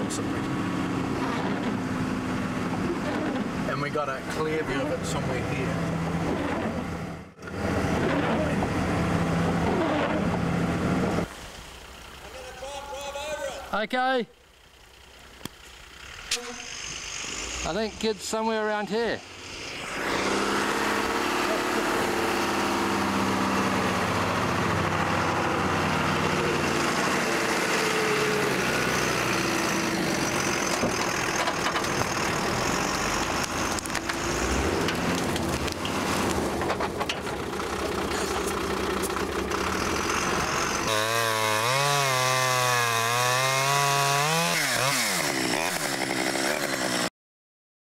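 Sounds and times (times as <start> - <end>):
truck engine running: 0.0 - 42.4
chainsaw cutting wood: 16.3 - 17.8, 19.2 - 24.3, 25.8 - 37.0, 38.0 - 47.1.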